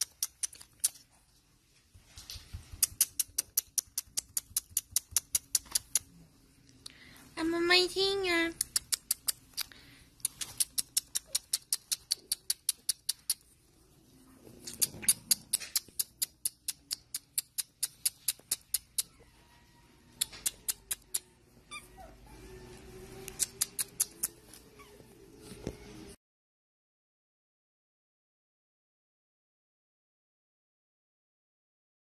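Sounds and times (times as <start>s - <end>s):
puppy sucking finger clicks: 0.0s - 1.2s, 2.6s - 6.1s, 8.5s - 13.6s, 14.6s - 19.1s, 20.2s - 21.3s, 23.2s - 24.6s
puppy whining: 10.3s - 16.9s, 17.7s - 26.2s.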